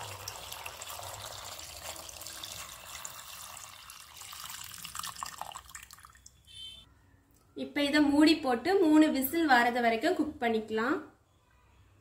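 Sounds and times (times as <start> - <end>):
water pouring into a pot: 0.0 - 6.4.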